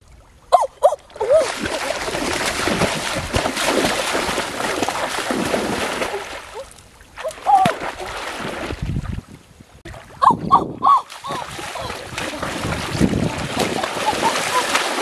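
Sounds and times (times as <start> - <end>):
legs splashing through water: 0.8 - 9.2, 9.9 - 15.0.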